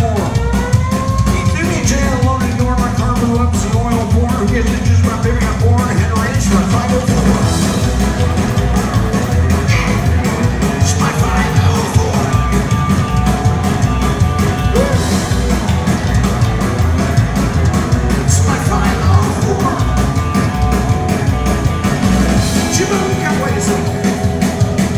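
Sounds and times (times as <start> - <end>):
drum kit: 0.0 - 24.9
electric guitar: 0.0 - 24.9
upright bass: 0.0 - 24.9
vocal shouts: 14.6 - 15.6.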